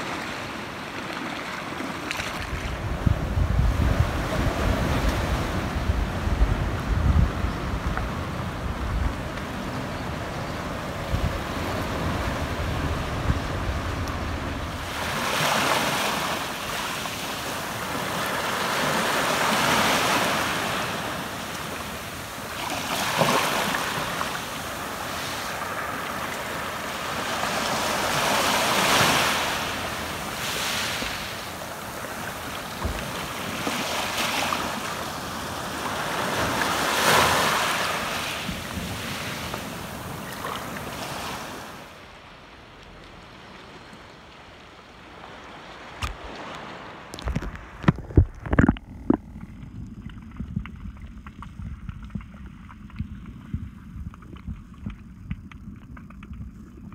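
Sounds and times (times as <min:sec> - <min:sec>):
waves washing up a gravel beach: 0:00.0 - 0:48.4.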